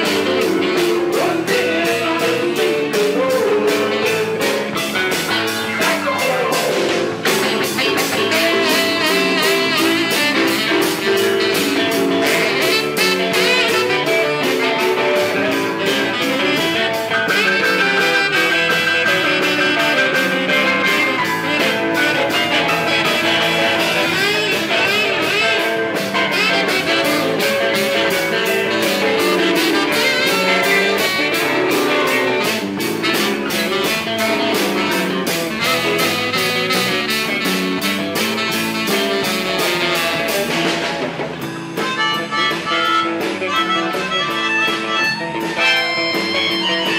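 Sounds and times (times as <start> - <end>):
drum kit beat: 0.0 - 46.9
electric guitar: 0.0 - 46.9
keyboard: 0.0 - 46.9
saxophone: 0.0 - 46.9.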